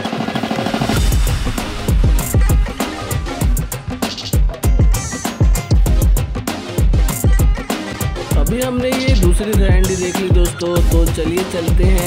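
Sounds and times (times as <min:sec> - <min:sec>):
loud music with drum beat: 0:00.0 - 0:12.0
heavy bass drum hits: 0:00.7 - 0:07.6.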